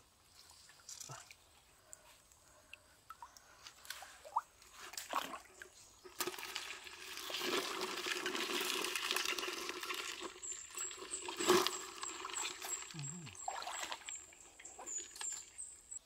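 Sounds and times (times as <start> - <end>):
stream trickling over rocks: 3.4 - 16.0.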